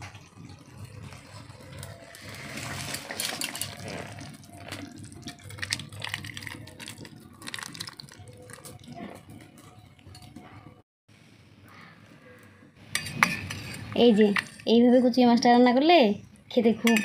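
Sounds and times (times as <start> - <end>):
thick curry pouring: 0.0 - 10.4
metal clinking and scraping: 1.7 - 6.2, 12.9 - 14.7.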